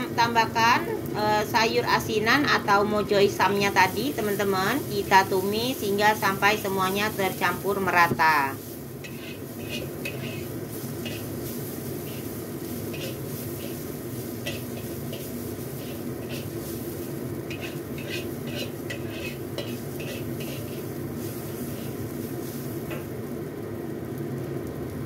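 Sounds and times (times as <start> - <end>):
metal spatula scraping a wok: 8.7 - 23.1.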